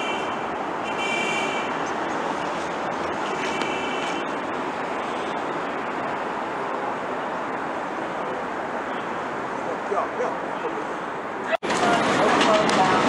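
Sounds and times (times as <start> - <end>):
elevated subway train running: 10.5 - 13.0.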